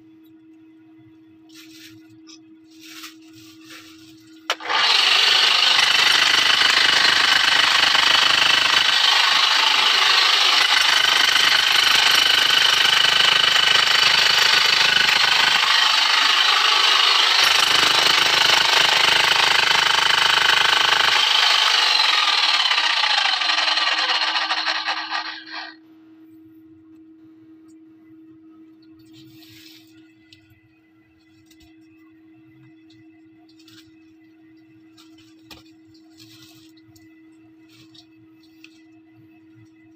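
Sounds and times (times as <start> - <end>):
power hammer hammering rock: 4.5 - 22.8.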